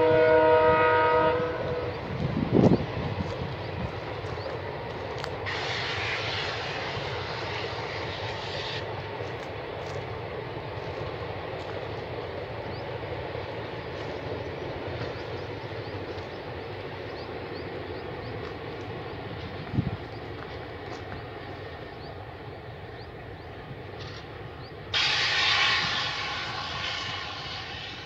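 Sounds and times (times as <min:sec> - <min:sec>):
train rumbling on track: 0:00.0 - 0:28.0
hiss: 0:05.2 - 0:09.4, 0:24.9 - 0:28.0.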